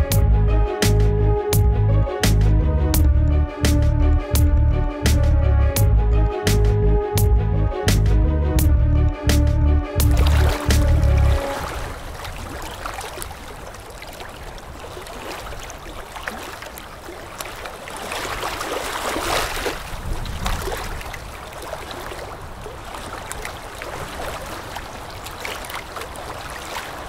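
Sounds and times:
flowing water with crackling: 10.0 - 27.0.

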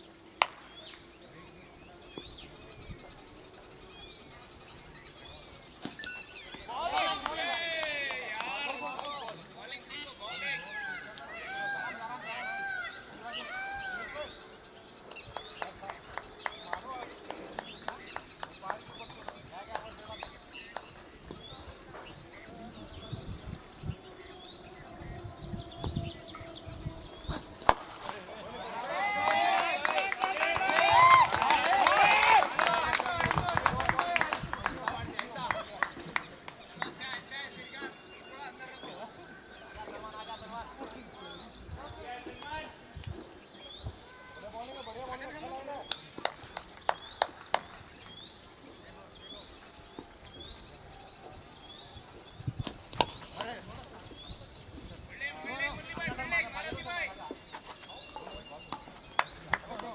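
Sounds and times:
bird chirping trill: 0.0 - 6.8, 8.4 - 28.9
insect chirps: 0.0 - 30.0, 32.8 - 59.9
wind buffeting microphone: 15.2 - 28.8, 30.6 - 36.4, 40.9 - 44.2, 50.0 - 59.6
high-pitched insect buzz: 22.3 - 27.7.

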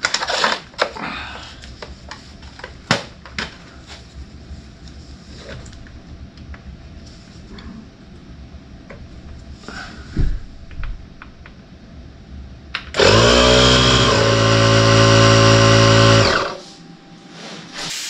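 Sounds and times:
electric tire inflator motor running: 12.9 - 16.6.

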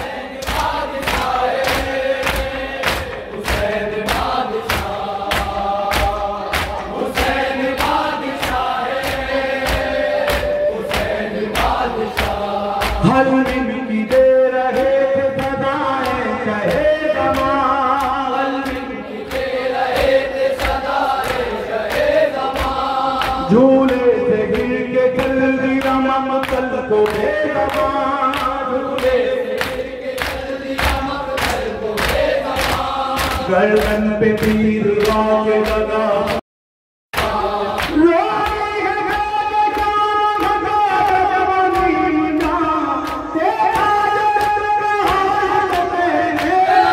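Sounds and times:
group of men chanting: 0.0 - 36.4, 37.2 - 46.9
hands slapping chests: 0.0 - 36.4
man singing over a microphone: 10.2 - 19.2, 23.1 - 29.7, 33.2 - 36.4, 37.6 - 46.9.

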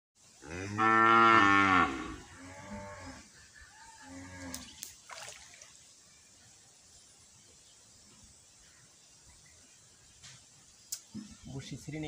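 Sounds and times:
cow mooing: 0.4 - 3.3.

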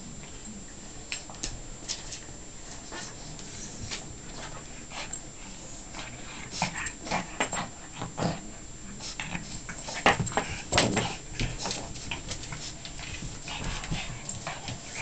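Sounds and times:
dogs scuffling: 9.0 - 15.0.

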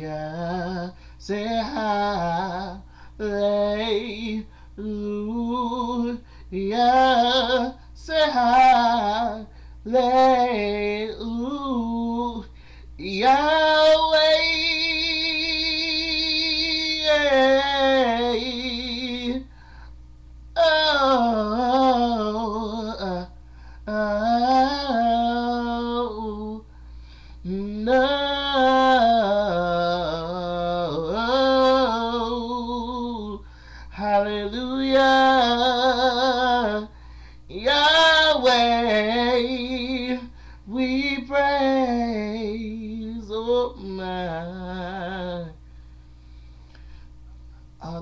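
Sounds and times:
man singing unaccompanied: 0.0 - 19.6, 20.5 - 26.7, 27.4 - 45.6, 47.8 - 48.0.

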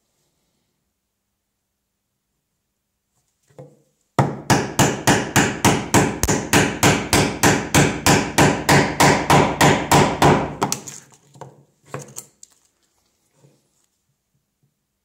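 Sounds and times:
chisel struck into wood: 4.2 - 10.8.

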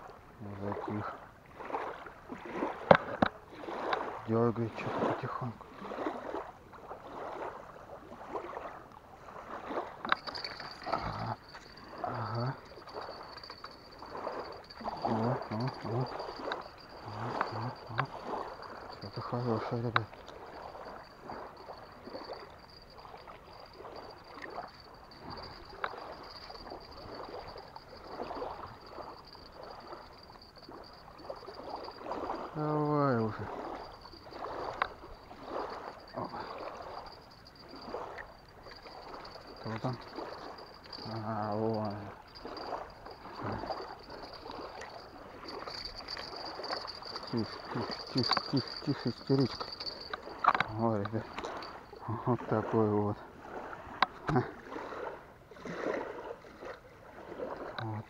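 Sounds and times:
small waves lapping on shore: 0.0 - 58.0
water sloshing: 1.1 - 58.0
fish splashing and thrashing: 9.3 - 19.3, 20.0 - 32.5, 33.4 - 52.1
thin high-pitched whine: 10.0 - 52.7.

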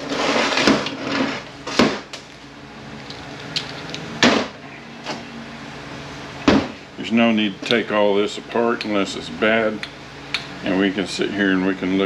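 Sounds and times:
metal parts knocking and clanking: 3.1 - 4.2.

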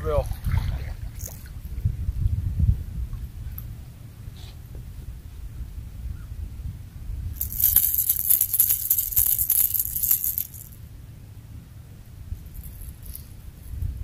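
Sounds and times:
wind rumble on microphone: 0.0 - 14.0.

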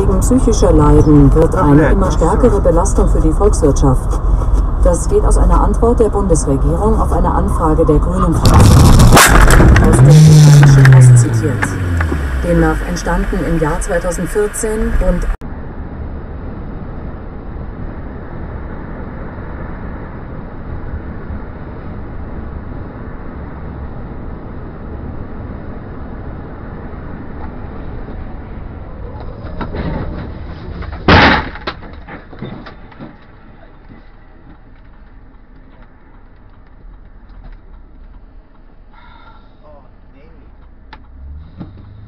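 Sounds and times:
road and tyre noise: 0.0 - 42.0
debris clattering: 8.4 - 10.9, 30.7 - 33.2
loud car crash: 8.4 - 12.5, 29.5 - 33.2.

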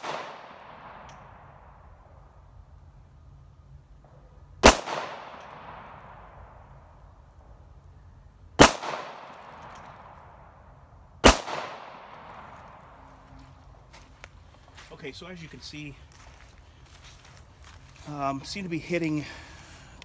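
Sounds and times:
pistol shots echoing: 0.0 - 1.7, 4.6 - 6.8, 8.6 - 10.6, 11.2 - 13.1.

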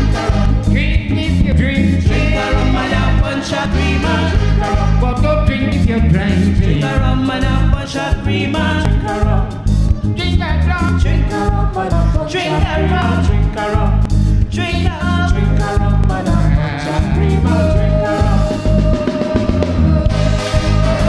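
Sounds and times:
horn section: 0.0 - 1.0, 2.0 - 7.0, 16.3 - 21.0
live band playing: 0.0 - 21.0.

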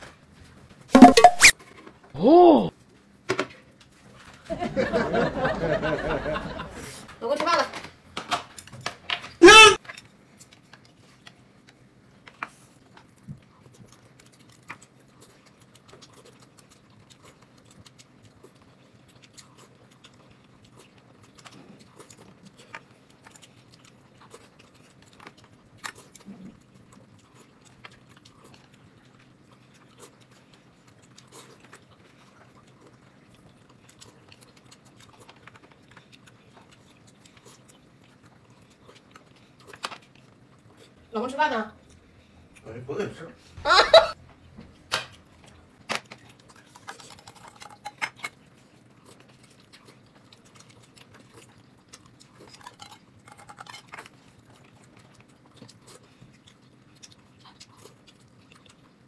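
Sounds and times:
loud voice: 2.2 - 2.7, 9.4 - 9.8
close-up chewing: 8.6 - 59.0.

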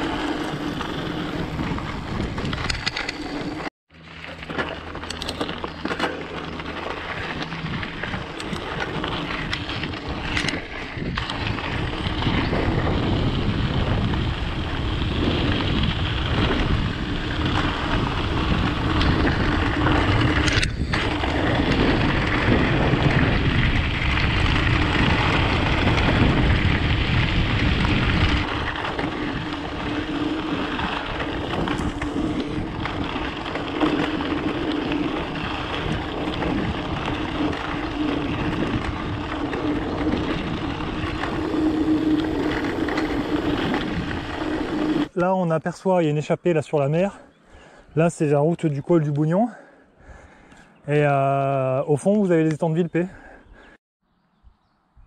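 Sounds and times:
wind on microphone: 0.0 - 3.7, 6.6 - 45.1
bike tyres on stony trail: 0.0 - 54.8.

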